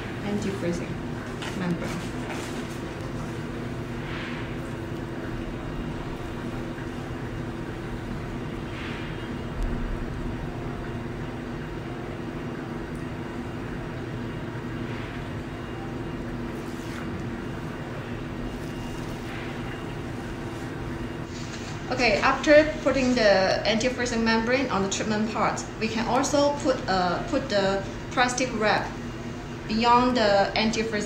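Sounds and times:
machine droning hum: 0.0s - 31.0s
membrane rustling: 16.5s - 21.4s.

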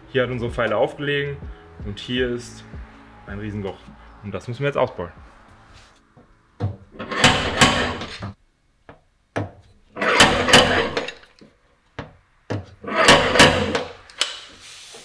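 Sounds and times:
metal-on-metal scraping and clatter: 7.0s - 8.3s, 9.9s - 11.4s, 12.8s - 14.0s.

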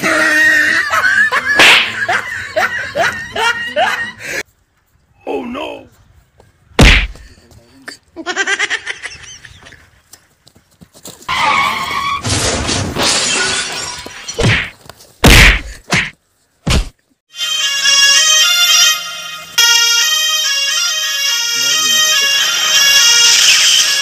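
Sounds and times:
heavy thuds: 6.8s - 7.3s, 14.4s - 17.0s
crash with shattering: 12.0s - 15.6s.

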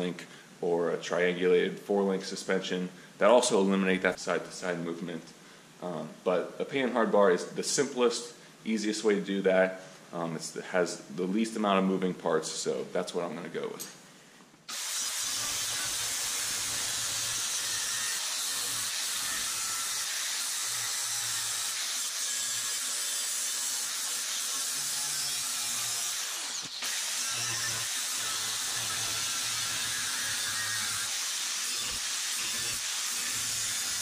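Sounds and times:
angle grinder cutting steel: 14.7s - 34.0s.

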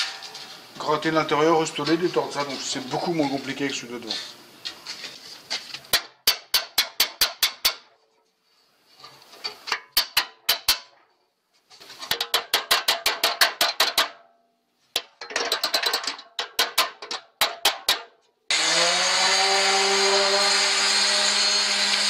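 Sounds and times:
hammer striking steel bumper: 5.9s - 7.9s.

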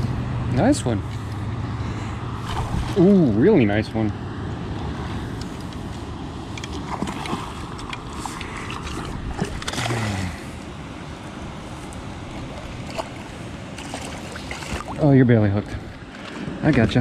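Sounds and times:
wind rumble on microphone: 2.1s - 3.6s, 4.4s - 10.0s
fish splashing at the surface: 2.4s - 3.2s, 6.7s - 10.6s, 12.4s - 15.0s.

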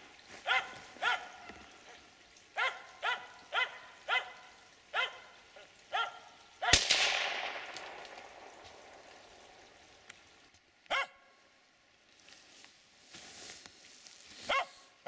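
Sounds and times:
dog barking: 0.4s - 6.8s, 10.9s - 11.3s, 14.5s - 14.9s
gunshot echoing: 6.7s - 9.8s.

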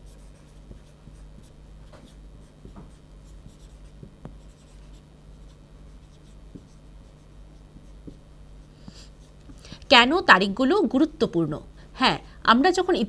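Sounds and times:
low steady hum: 0.0s - 13.0s
marker writing on whiteboard: 0.1s - 9.5s.

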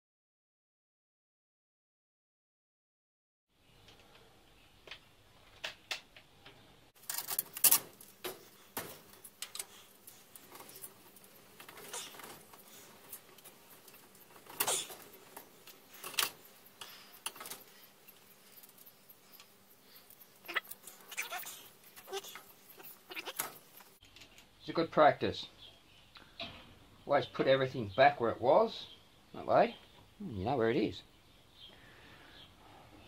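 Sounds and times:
metal spanners clinking: 7.0s - 24.0s.

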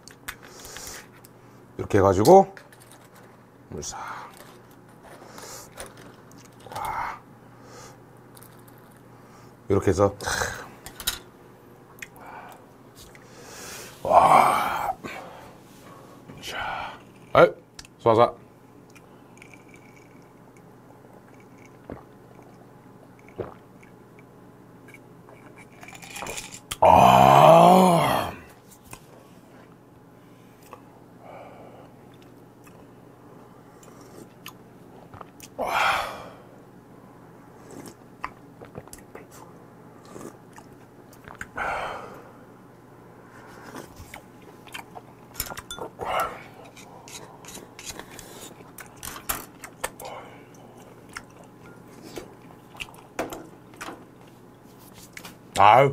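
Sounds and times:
person gulping a drink: 21.3s - 22.6s, 23.2s - 24.0s
utensils clinking against dish: 45.3s - 45.9s.

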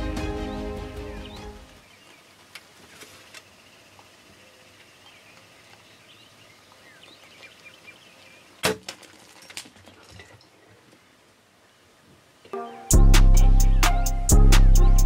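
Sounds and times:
arrow striking: 8.6s - 9.0s.

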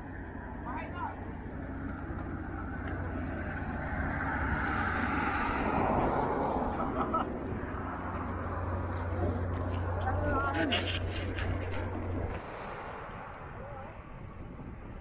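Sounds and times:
road vehicle passing: 0.0s - 15.0s
wind rumble on microphone: 0.0s - 15.0s.

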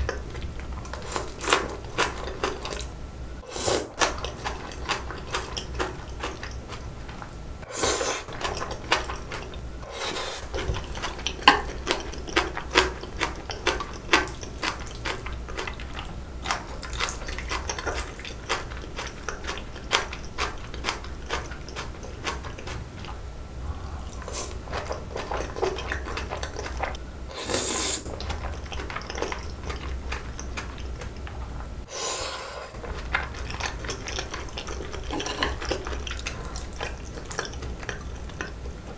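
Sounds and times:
wet chewing: 0.0s - 2.9s, 4.0s - 31.7s, 32.7s - 38.9s
slurping noodles: 3.4s - 4.1s, 7.6s - 9.1s, 9.8s - 11.6s, 23.6s - 29.8s, 31.9s - 37.5s.

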